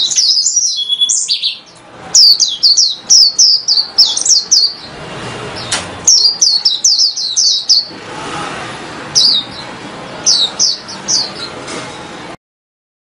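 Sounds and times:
bird singing high chirps: 0.0s - 5.0s, 5.6s - 8.0s, 9.1s - 11.6s.

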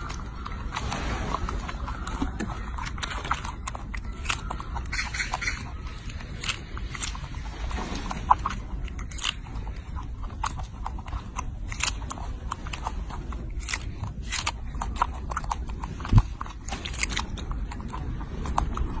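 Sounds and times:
monkey chewing fruit: 0.0s - 19.0s
steady low rumble: 0.0s - 19.0s.

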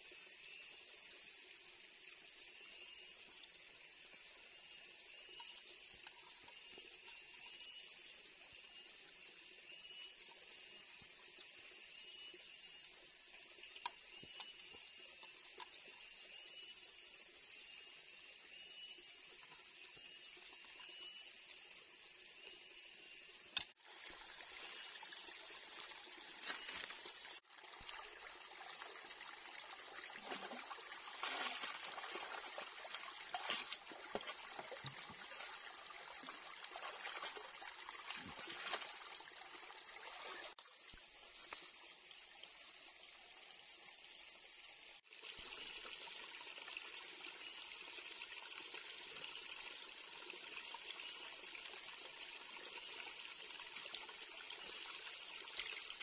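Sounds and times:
stream water running: 0.0s - 56.0s.

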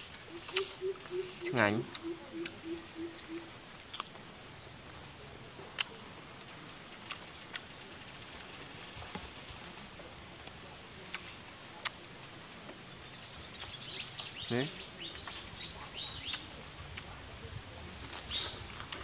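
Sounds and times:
person chewing food: 2.9s - 4.2s, 7.0s - 7.7s.

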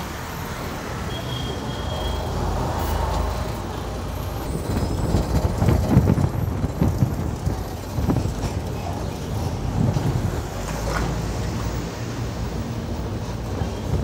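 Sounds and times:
bus engine drone: 0.0s - 14.0s
road noise: 0.0s - 14.0s
low thumps and buffeting: 4.5s - 8.7s.

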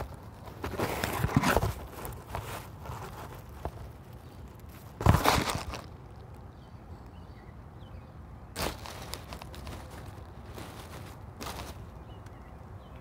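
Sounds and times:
grass and soil rustling and crunching: 0.0s - 6.4s, 8.5s - 12.5s.

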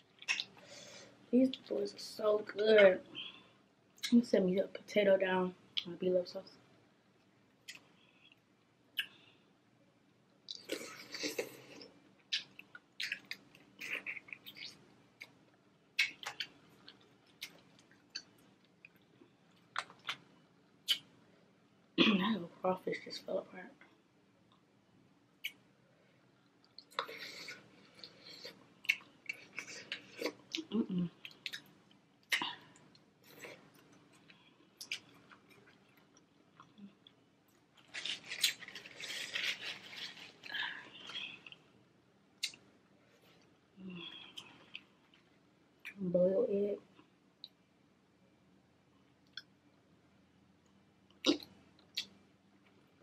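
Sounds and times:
wet eating sounds: 0.0s - 0.7s, 26.4s - 41.6s
shells cracking and peeling: 37.8s - 40.5s.

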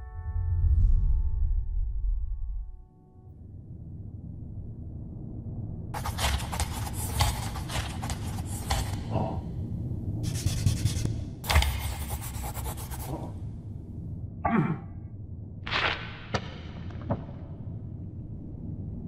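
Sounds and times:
steady low rumble: 0.2s - 19.0s
rubbing or scraping noise: 6.0s - 9.2s, 10.2s - 13.4s.

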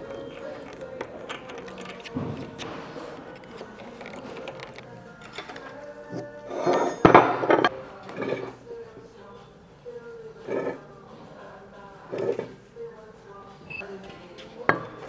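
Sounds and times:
metal pick scraping and clicking: 0.0s - 5.8s.

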